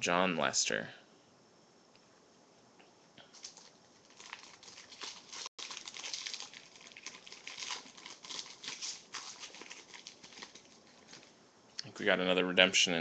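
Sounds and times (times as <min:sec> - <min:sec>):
foil wrapper crinkling and tearing: 0:03.4 - 0:11.3.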